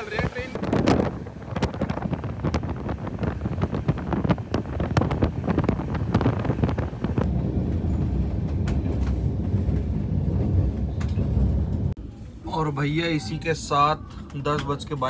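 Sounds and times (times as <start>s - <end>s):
wind buffeting microphone: 0.0s - 12.0s
low train rumble: 0.0s - 15.0s
train wheels clattering on track: 6.0s - 11.9s.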